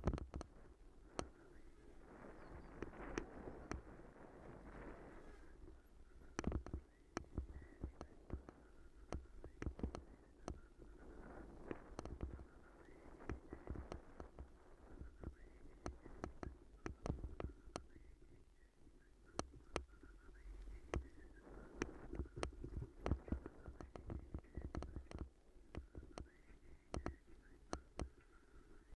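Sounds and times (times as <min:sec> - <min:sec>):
bicycle tyre rumble on gravel: 0:02.1 - 0:05.6.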